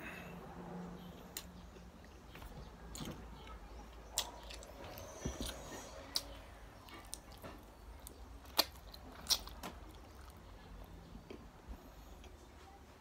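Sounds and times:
person chewing with mouth smacks: 1.2 - 11.5.

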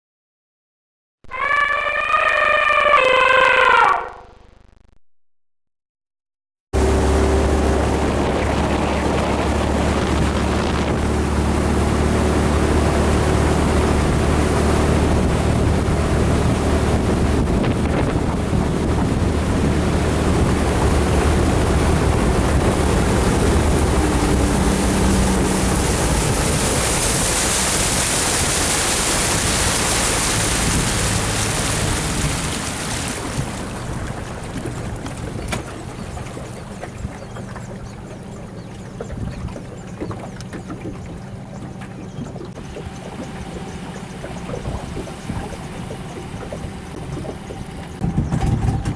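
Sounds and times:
boat engine hum: 1.2 - 4.2, 6.8 - 48.9
wind buffeting microphone: 7.2 - 48.9
hiss of wind or water: 21.7 - 34.2.

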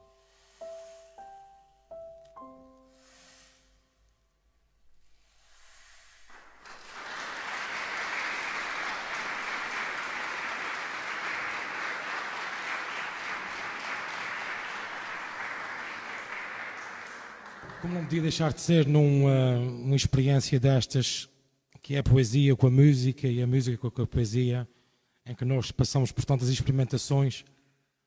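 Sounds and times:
audience applauding: 6.3 - 19.2.

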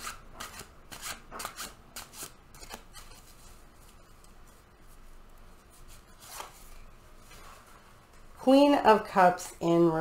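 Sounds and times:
cards shuffling: 0.4 - 4.4, 5.8 - 6.8.

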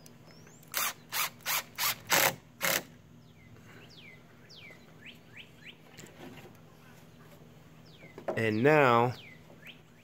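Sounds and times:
birds chirping: 0.0 - 1.3, 3.1 - 10.0
cordless drill driving a screw: 0.7 - 2.9.

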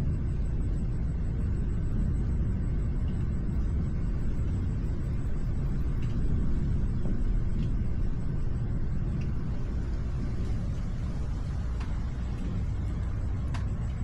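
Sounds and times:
low thunder rumble: 0.0 - 14.0.

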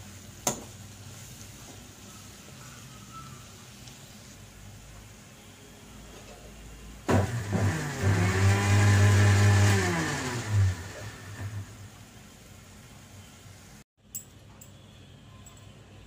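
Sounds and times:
motor winding up and down: 7.2 - 11.7.

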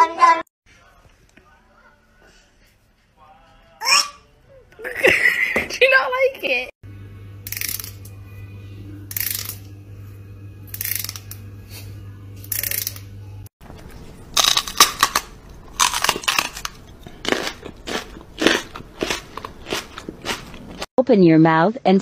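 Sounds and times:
steady low hum: 6.8 - 20.9
scratchy crunching bursts: 14.3 - 20.9.

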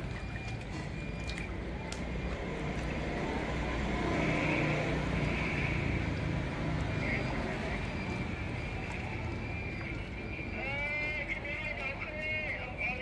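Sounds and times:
water splashing in a metal basin: 0.0 - 13.0.

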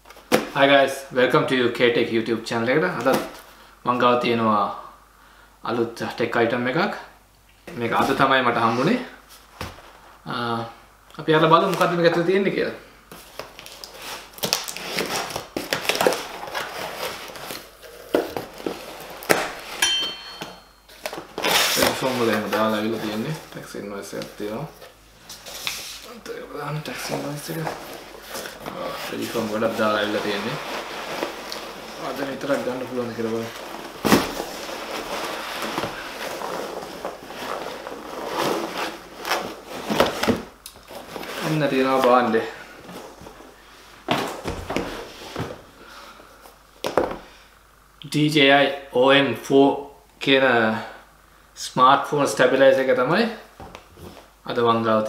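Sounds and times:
packaging rustling and scraping: 13.1 - 19.8, 20.4 - 45.8.

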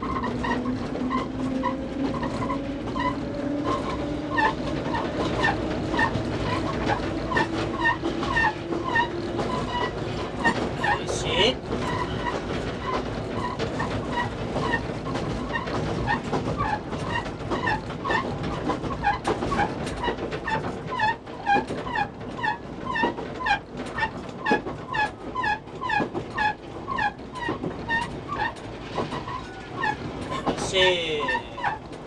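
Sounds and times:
clicks of rail joints: 0.0 - 32.0.

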